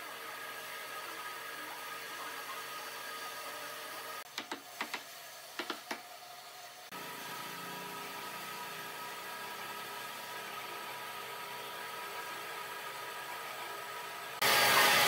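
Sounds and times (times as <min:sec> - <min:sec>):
workshop hum: 0:00.0 - 0:15.0
wooden mallet knocking wood: 0:05.6 - 0:06.0.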